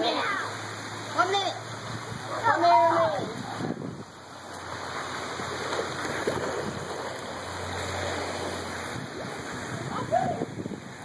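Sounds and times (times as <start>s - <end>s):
rushing water: 0.0s - 11.0s.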